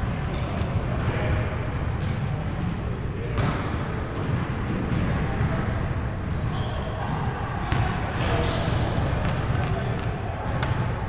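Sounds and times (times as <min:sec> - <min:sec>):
sneaker squeaks: 0:00.0 - 0:10.8
basketball bouncing: 0:03.4 - 0:04.5, 0:07.7 - 0:10.9.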